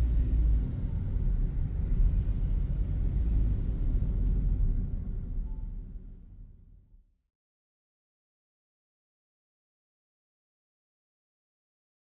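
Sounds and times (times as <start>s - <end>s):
car cabin engine and tyre rumble: 0.0s - 6.1s.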